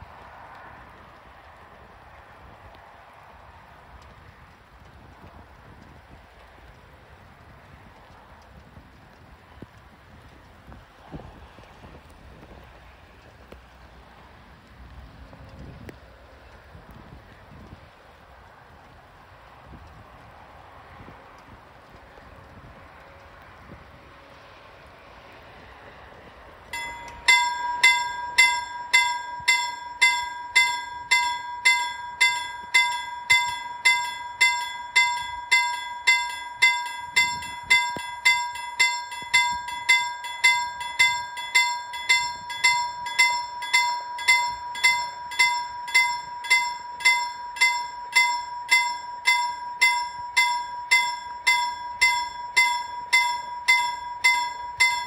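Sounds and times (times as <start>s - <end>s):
level crossing warning bell: 26.7s - 55.0s.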